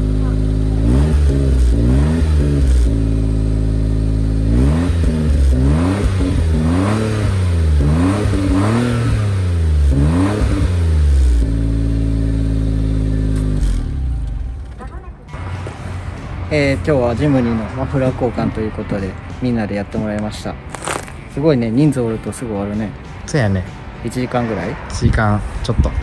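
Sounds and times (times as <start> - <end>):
car engine revving and idling: 0.0 - 14.7.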